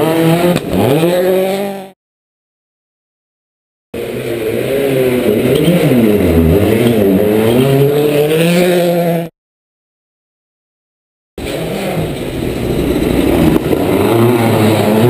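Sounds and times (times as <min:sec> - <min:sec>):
rally car engine slowing and accelerating: 0:00.0 - 0:01.9, 0:04.0 - 0:09.3, 0:11.4 - 0:15.0.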